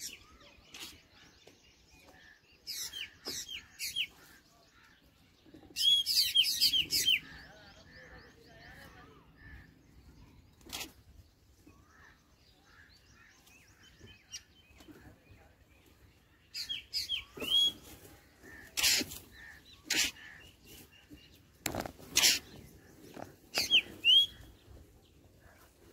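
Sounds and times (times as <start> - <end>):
harsh bird calls: 2.3 - 15.6, 16.4 - 25.9
bird chirps: 5.5 - 25.6
whistled bird notes: 17.1 - 17.9, 23.6 - 24.5.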